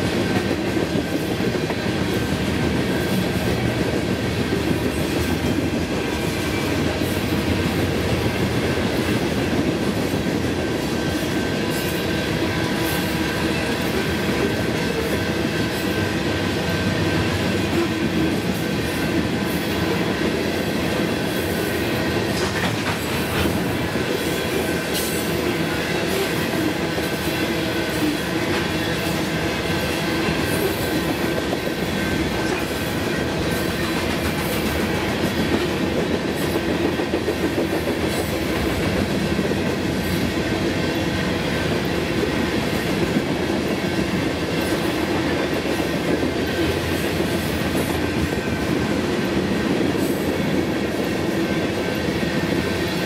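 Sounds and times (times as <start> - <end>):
freight train rumbling past: 0.0 - 53.0.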